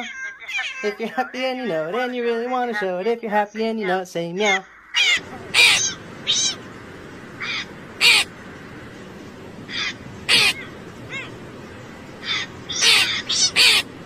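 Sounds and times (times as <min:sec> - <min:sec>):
crow cawing: 0:04.8 - 0:06.6, 0:07.3 - 0:08.4, 0:09.6 - 0:11.4, 0:12.2 - 0:14.0.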